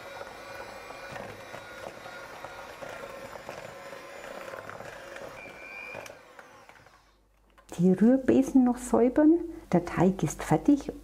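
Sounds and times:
electric hand mixer running: 0.0 - 7.2.

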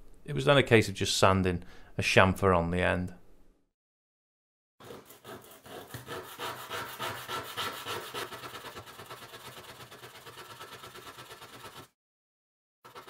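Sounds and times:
wooden stick rubbing on sandpaper: 4.8 - 11.9.

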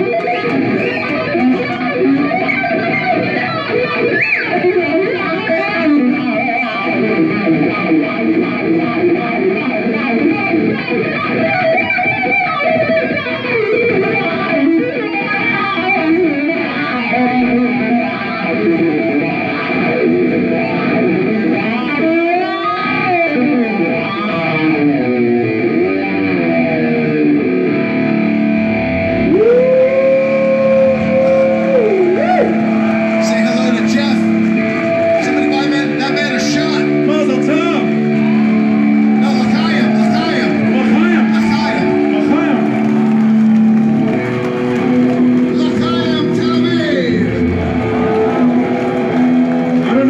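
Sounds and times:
electric guitar solo: 0.0 - 50.0.

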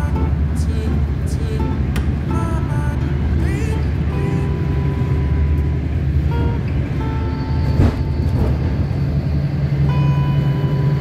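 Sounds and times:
train rumbling inside carriage: 0.0 - 11.0.

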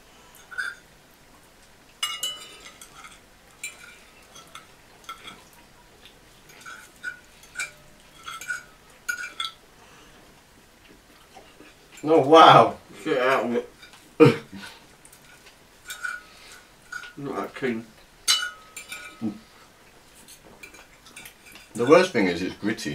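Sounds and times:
forks clinking on plates: 0.3 - 0.9, 2.0 - 5.6, 6.4 - 9.6, 15.1 - 17.2, 18.2 - 19.5, 20.2 - 22.7.

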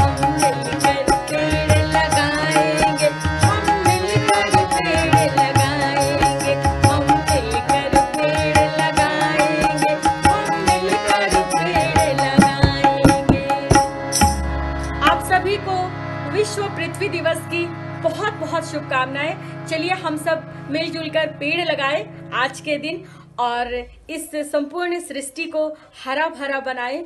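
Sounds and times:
instrumental music with fast drum beat: 0.0 - 14.5.

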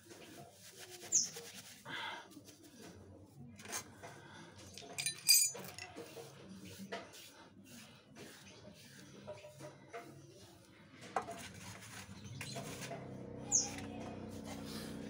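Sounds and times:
steel striker scraping stone: 4.9 - 6.1
bird chirping: 13.5 - 13.8.

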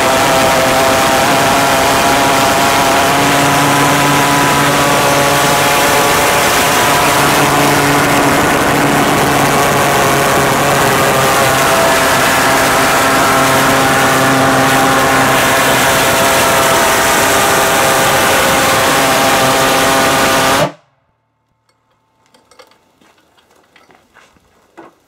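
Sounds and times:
pulsejet engine buzzing: 0.0 - 20.9.

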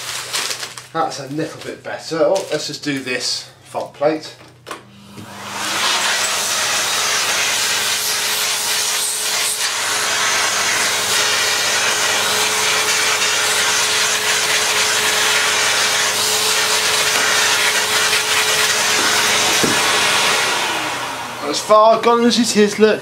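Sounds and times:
power tool abrasive scrubbing: 4.9 - 22.8.

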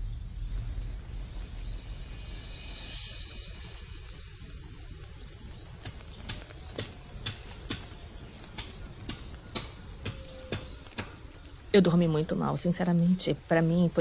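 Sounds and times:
faint high insect hum: 0.0 - 14.0
regular sharp ticking clicks: 4.4 - 12.1.

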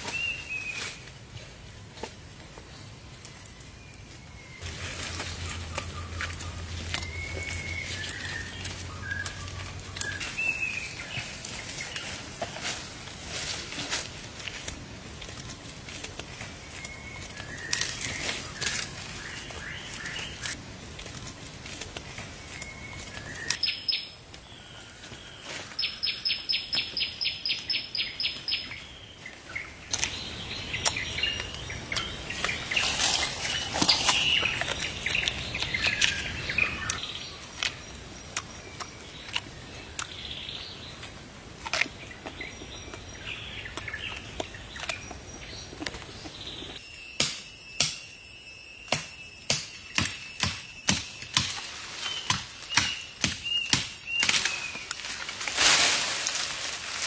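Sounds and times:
rustling noise: 0.0 - 23.6, 32.2 - 36.9, 53.9 - 57.0.

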